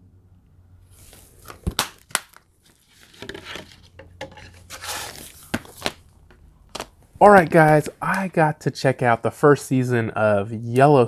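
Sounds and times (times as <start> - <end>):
plastic and card rustling: 0.9 - 6.1, 6.7 - 8.0.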